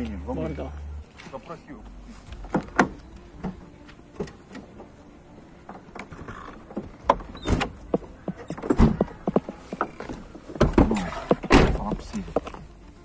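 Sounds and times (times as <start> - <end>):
knocks and rustling: 2.3 - 4.7, 5.6 - 12.6
car doors thumping: 2.4 - 5.0, 5.6 - 12.2.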